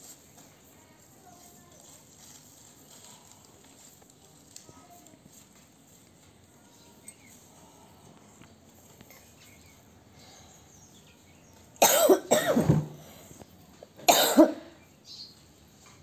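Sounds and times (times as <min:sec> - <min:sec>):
person coughing: 0:11.8 - 0:12.9, 0:14.1 - 0:14.7.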